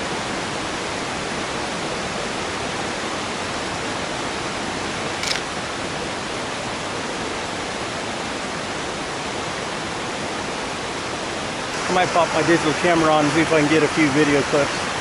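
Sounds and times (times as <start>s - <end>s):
high click: 5.2s - 5.5s
creek and waterfall roar: 5.7s - 15.0s.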